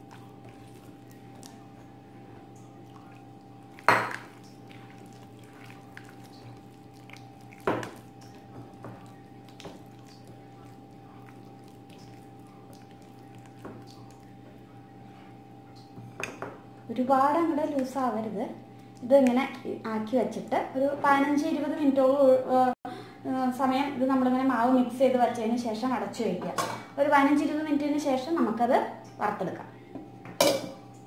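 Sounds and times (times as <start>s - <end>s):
hand squishing batter: 0.0s - 15.1s
clinks against glass bowl: 30.4s - 30.8s.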